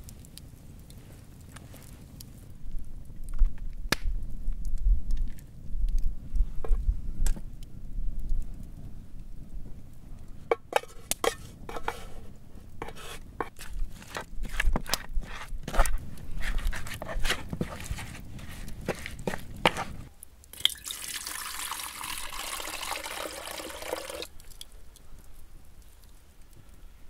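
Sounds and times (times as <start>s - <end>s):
wooden spoon knocking and scraping: 10.5s - 20.1s.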